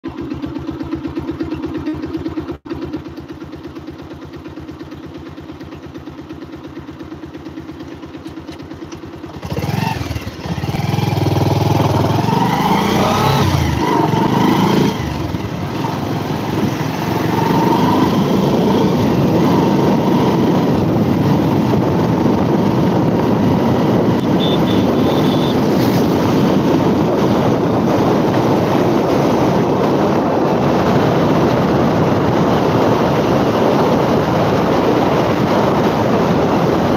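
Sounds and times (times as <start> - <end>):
motorcycle engine idling and revving: 0.0 - 36.9
wind noise at riding speed: 9.3 - 36.9.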